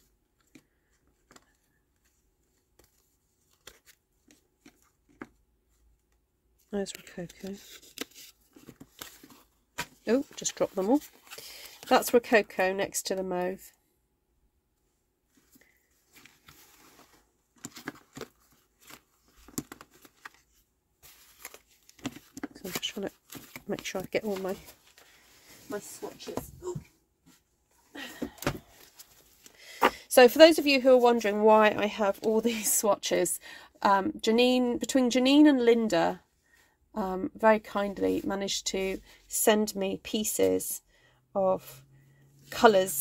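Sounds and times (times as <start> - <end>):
card taps and rustles: 17.6 - 20.4, 21.1 - 25.1.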